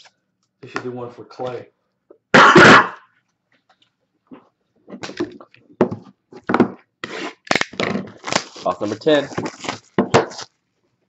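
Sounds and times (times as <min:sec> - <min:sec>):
box cutter slitting shrink wrap: 0:07.0 - 0:10.6.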